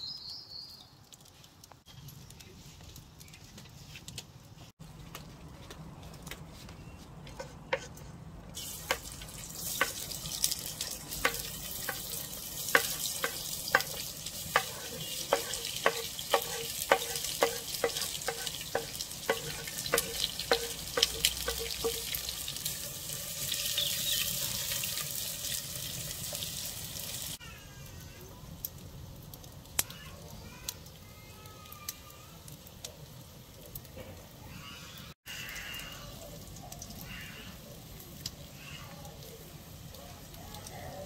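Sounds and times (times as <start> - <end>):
wooden spoon stirring onions: 6.5 - 25.6
onions sizzling in a pot: 8.5 - 41.0
sharp taps ringing on a pot: 14.6 - 22.2.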